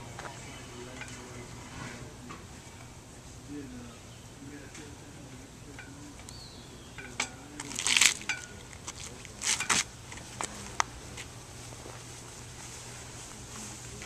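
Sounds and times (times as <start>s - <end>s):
flag rustling: 7.0s - 14.0s.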